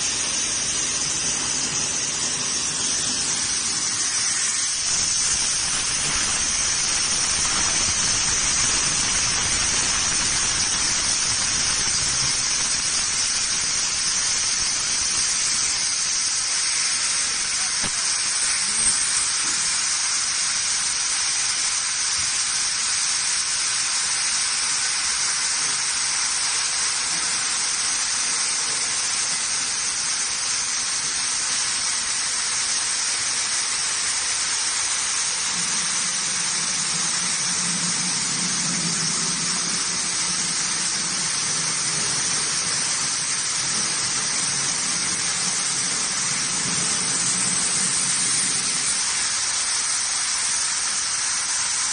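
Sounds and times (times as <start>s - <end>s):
hiss of laser assist gas: 0.0s - 51.9s.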